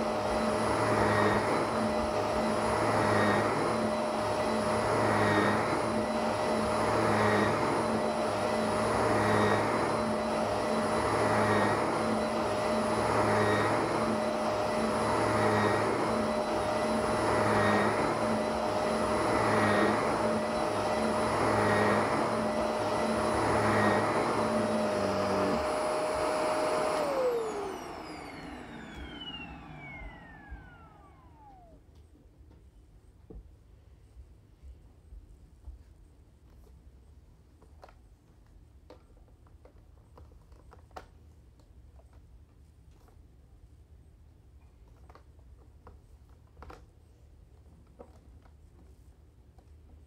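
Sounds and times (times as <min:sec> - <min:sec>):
vacuum cleaner running on carpet: 0:00.0 - 0:32.0
vacuum motor spinning down: 0:00.0 - 0:32.0.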